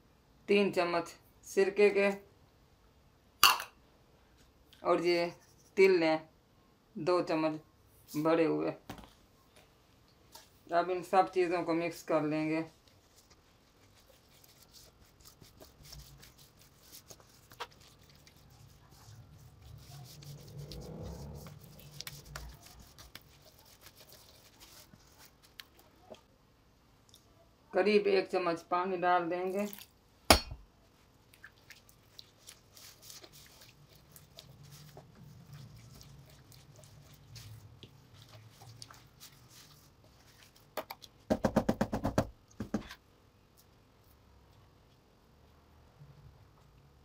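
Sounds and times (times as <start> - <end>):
spatula scraping batter in bowl: 13.0 - 25.6, 32.2 - 40.6
utensils rapping on steel bowl: 30.3 - 30.6.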